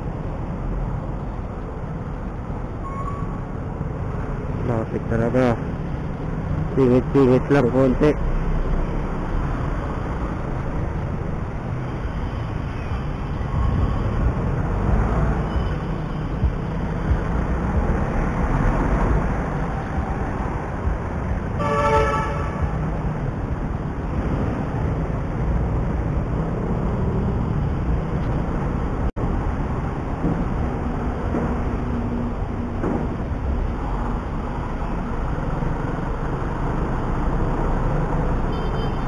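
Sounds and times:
city traffic noise: 0.0s - 39.0s
vehicle horn: 21.6s - 22.8s, 38.5s - 39.0s.

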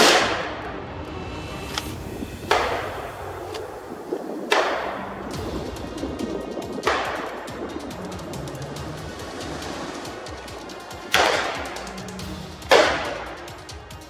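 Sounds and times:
rifle shots with echo: 12.7s - 13.4s.

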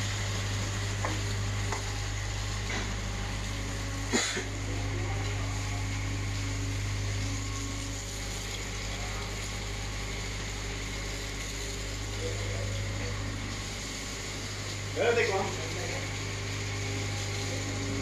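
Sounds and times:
low machinery hum: 0.0s - 18.0s
ventilation hiss: 0.0s - 18.0s.

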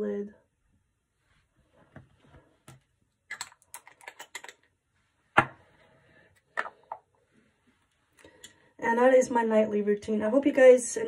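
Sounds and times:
object knocking on surface: 5.4s - 5.6s.

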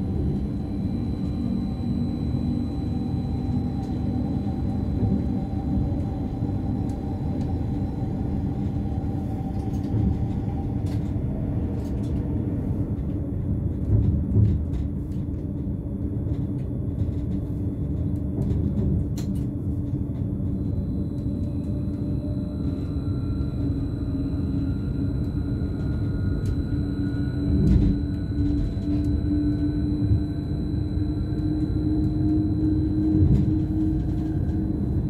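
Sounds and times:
faint high whine: 0.0s - 11.9s, 20.0s - 35.0s
train running rumble: 0.0s - 35.0s.

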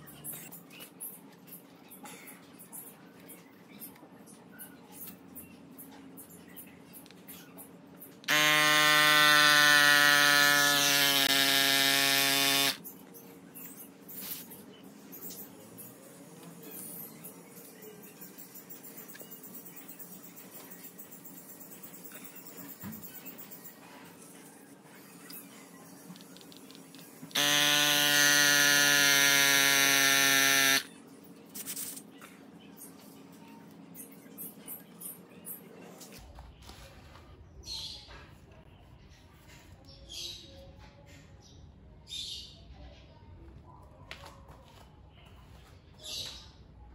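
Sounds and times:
electric air pump buzzing: 8.3s - 12.8s, 27.3s - 30.9s.

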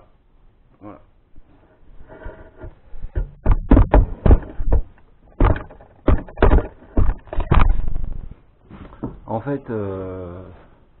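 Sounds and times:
knocks on wooden frame: 3.1s - 8.0s.

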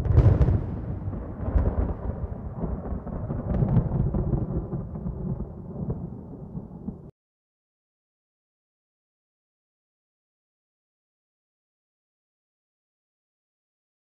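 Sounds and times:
sharp thunder crack: 0.0s - 7.1s
thunder rumble: 0.0s - 7.1s.

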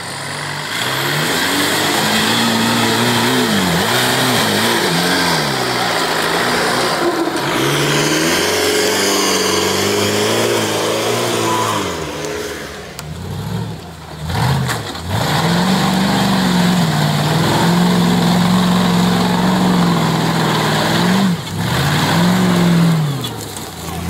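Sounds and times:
buggy engine revving hard: 0.0s - 24.0s.

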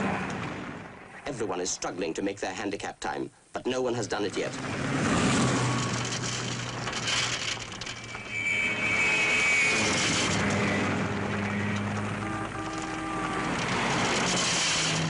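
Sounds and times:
rally car engines revving: 4.5s - 7.7s
thin high whine: 5.8s - 15.0s.

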